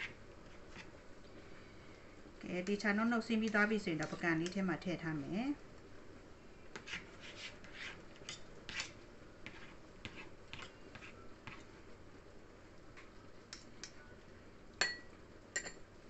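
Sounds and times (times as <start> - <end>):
spoon scraping a knife blade: 6.8 - 11.6.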